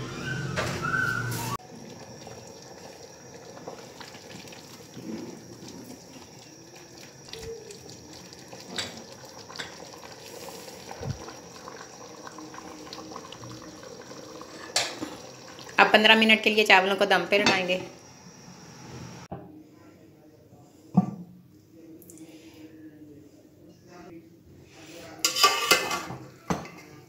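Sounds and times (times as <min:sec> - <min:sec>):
water bubbling in a pot: 0:01.6 - 0:16.5.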